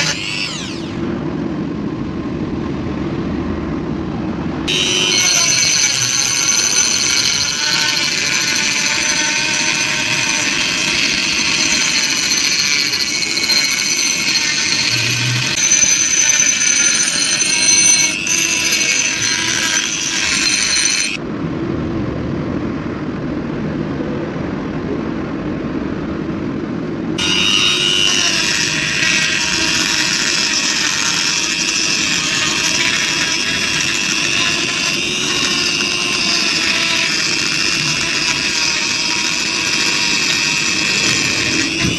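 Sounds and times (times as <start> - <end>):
rotary tool grinding metal: 0.0 - 1.1, 4.7 - 21.2, 27.2 - 41.9.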